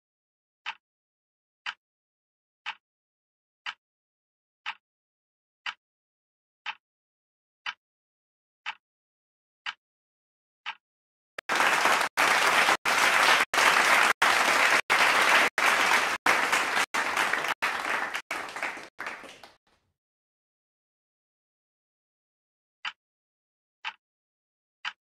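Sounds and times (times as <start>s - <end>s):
recorded applause: 11.4s - 19.6s.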